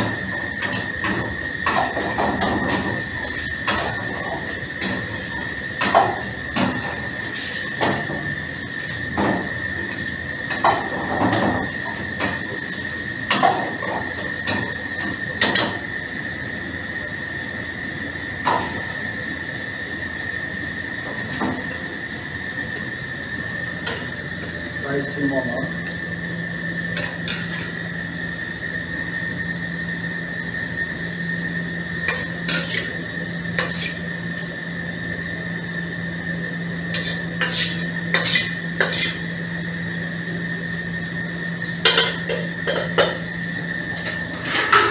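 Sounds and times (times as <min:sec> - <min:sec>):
steady high-pitched whine: 0:00.0 - 0:44.9
steady low hum: 0:00.0 - 0:44.9
metal pans and utensils clanking: 0:27.0 - 0:27.7, 0:32.1 - 0:33.0, 0:33.6 - 0:34.0, 0:36.9 - 0:39.3, 0:41.8 - 0:43.2, 0:44.0 - 0:44.9.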